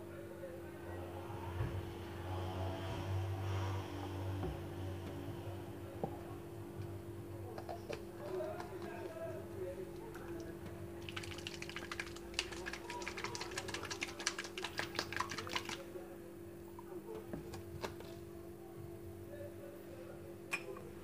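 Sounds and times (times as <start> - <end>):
glass bottle shaken: 11.0 - 15.8.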